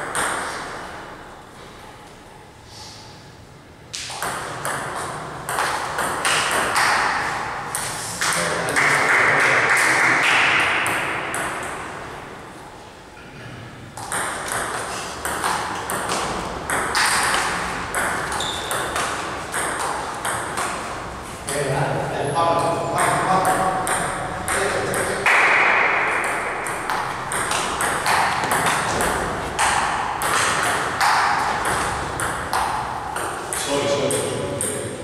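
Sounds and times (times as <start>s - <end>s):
table tennis ball clicking: 26.2s - 33.6s.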